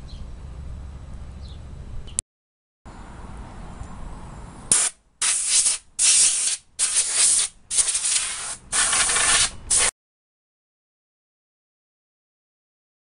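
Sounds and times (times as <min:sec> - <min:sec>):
air blow gun hissing blasts: 0:04.7 - 0:09.9.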